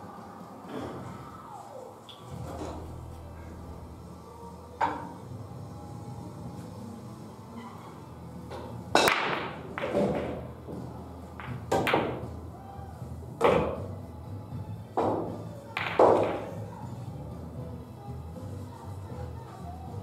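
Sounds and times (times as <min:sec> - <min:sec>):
pool balls clacking: 0:08.5 - 0:12.5, 0:13.4 - 0:14.0, 0:14.9 - 0:16.7.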